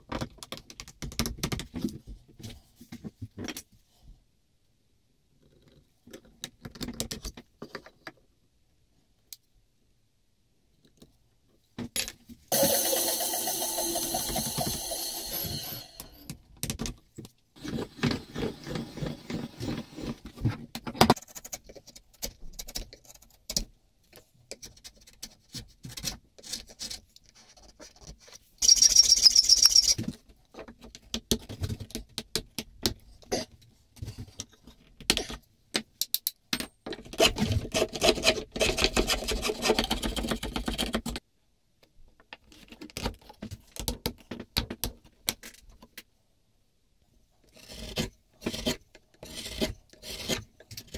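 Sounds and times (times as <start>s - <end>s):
chisel scraping wood: 47.5s - 50.9s.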